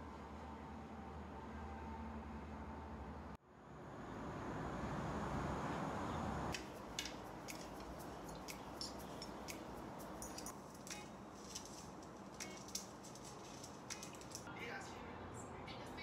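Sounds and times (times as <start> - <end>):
outdoor background noise: 0.0 - 16.0
small clicks and rustles: 6.6 - 14.5.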